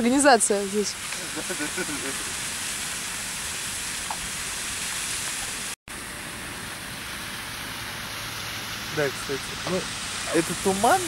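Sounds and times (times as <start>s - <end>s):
water spilling down waterfall: 0.4s - 11.0s.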